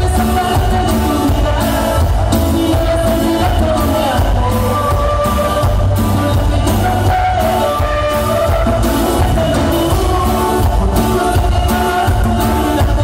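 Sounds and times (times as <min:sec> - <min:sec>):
live band music with heavy bass: 0:00.0 - 0:13.0.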